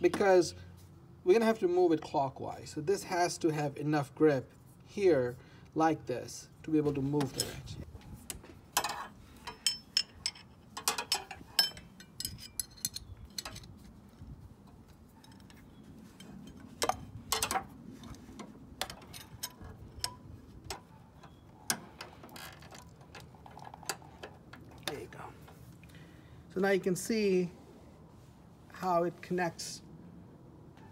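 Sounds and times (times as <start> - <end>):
metal wrenches clinking: 8.7 - 13.7, 15.1 - 18.2, 18.8 - 25.0.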